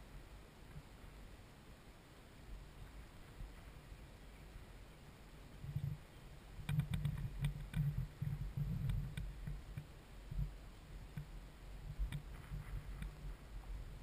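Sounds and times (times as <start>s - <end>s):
wind buffeting microphone: 5.6s - 14.0s
faint sharp clicks: 6.6s - 9.9s, 11.1s - 11.4s, 12.0s - 13.2s.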